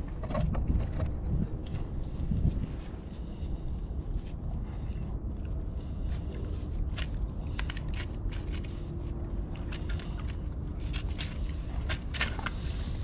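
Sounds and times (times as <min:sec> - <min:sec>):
steady low rumble: 0:00.0 - 0:13.0
dogs chewing and crunching: 0:04.1 - 0:13.0.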